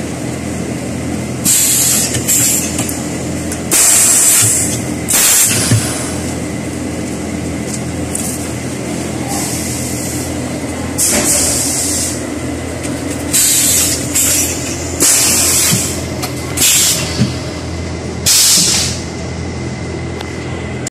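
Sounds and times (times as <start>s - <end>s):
machinery hum: 0.0s - 20.9s
air hiss bursts: 1.4s - 2.6s, 3.7s - 6.1s, 13.3s - 16.0s, 16.6s - 17.2s, 18.2s - 19.0s.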